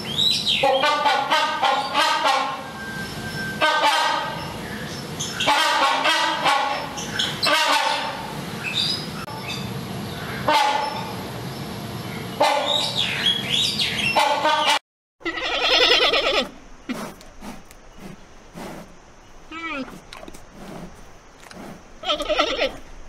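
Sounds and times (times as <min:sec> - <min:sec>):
hornbill honking calls: 0:00.5 - 0:02.7, 0:03.6 - 0:08.3, 0:12.4 - 0:16.6, 0:22.0 - 0:22.8.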